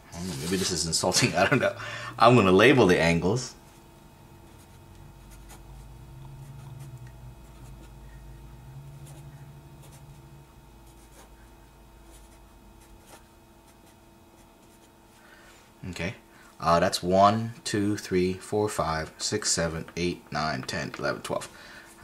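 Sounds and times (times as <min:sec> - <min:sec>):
low background hum: 0:00.0 - 0:22.0
marker pen writing on paper: 0:04.5 - 0:08.0, 0:09.0 - 0:11.4.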